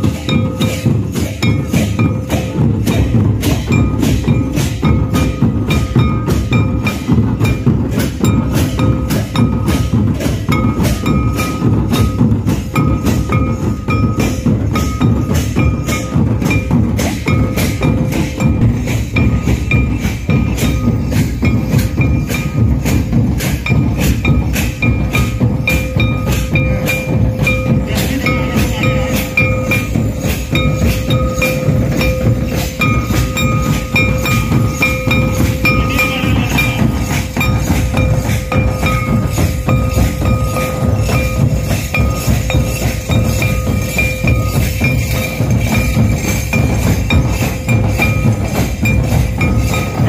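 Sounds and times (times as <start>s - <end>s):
barrel drums beating: 0.0s - 50.0s.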